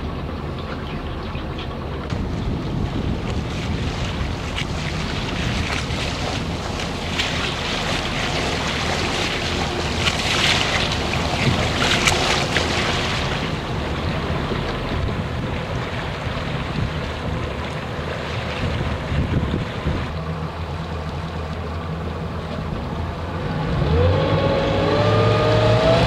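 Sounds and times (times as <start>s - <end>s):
boat engine rumble: 0.0s - 26.0s
water rushing along hull: 0.0s - 26.0s
wind buffeting microphone: 1.7s - 20.2s.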